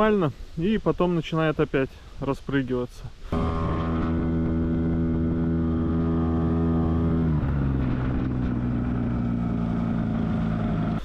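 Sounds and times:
outboard motor running: 3.3 - 11.0.

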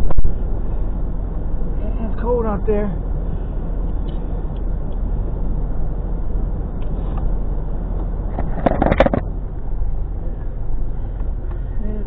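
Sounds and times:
low hum: 0.0 - 12.0
short loud clatter: 8.3 - 9.3.

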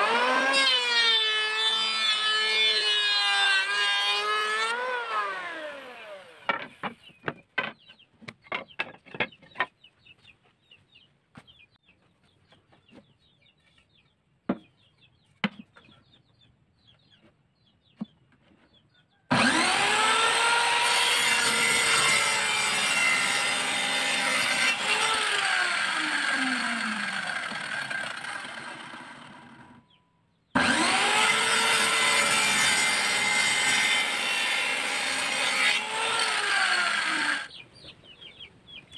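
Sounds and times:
electric hand planer winding down: 0.0 - 6.4, 19.3 - 29.8, 30.6 - 37.5
miter saw cutting wood: 0.0 - 6.8, 19.3 - 29.8, 30.6 - 37.5
wood pieces knocking: 6.5 - 9.7.

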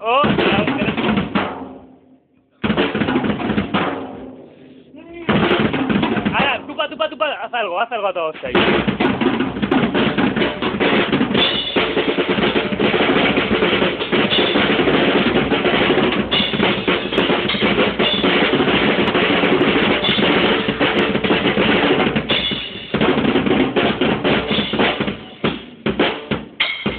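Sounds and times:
acoustic drum kit playing: 0.0 - 2.0, 2.6 - 7.6, 8.3 - 26.9.

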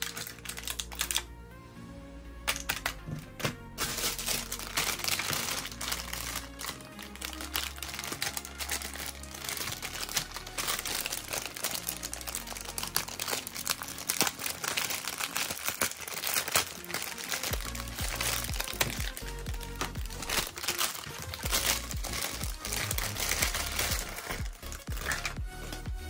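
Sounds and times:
plastic bag crinkling: 0.0 - 1.3, 2.5 - 25.9
background music: 0.0 - 26.0.

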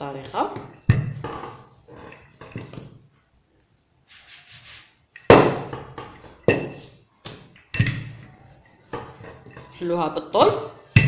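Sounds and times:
rolling pin rubbing dough: 4.0 - 6.9.

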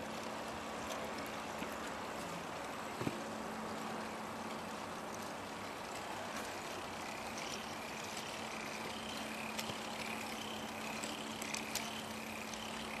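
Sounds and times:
low motor hum: 0.0 - 13.0
plastic gears whirring: 5.1 - 13.0
sharp clicks: 7.1 - 13.0.

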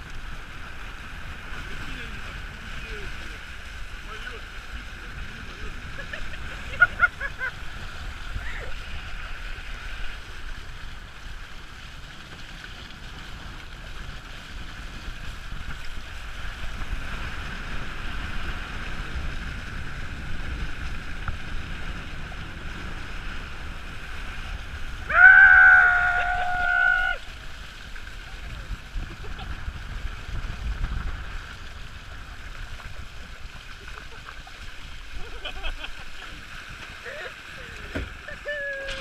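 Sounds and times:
water rushing past hull: 0.0 - 39.0
person shouting: 25.1 - 27.2, 38.4 - 39.0.

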